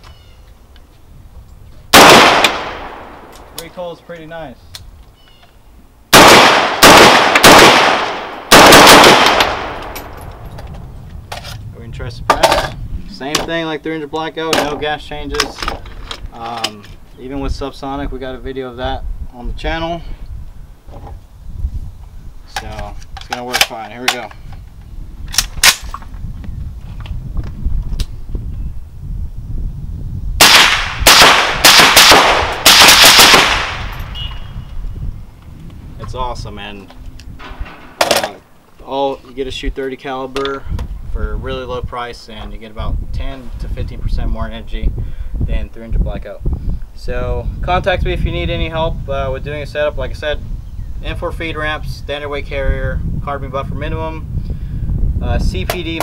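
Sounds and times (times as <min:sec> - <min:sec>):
rifle shots with long echo: 0:01.9 - 0:03.5, 0:06.1 - 0:10.4, 0:30.4 - 0:34.1.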